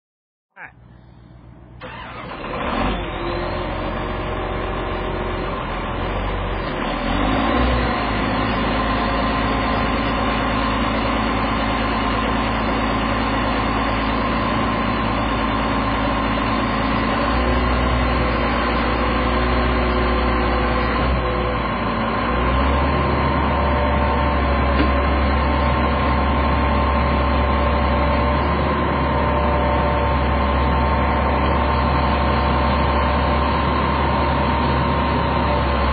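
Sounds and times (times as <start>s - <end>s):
diesel engine rumbling: 0.5s - 35.9s.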